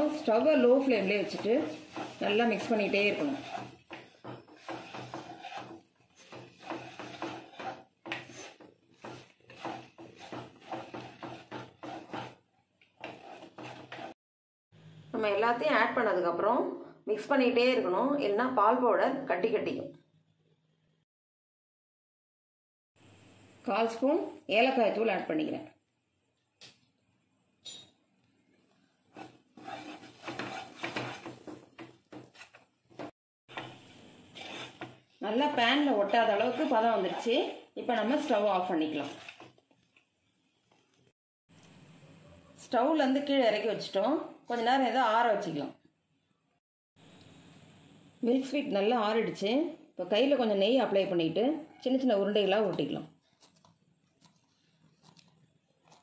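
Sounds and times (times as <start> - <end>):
spatula scraping pan: 0.0 - 14.2, 28.6 - 39.9.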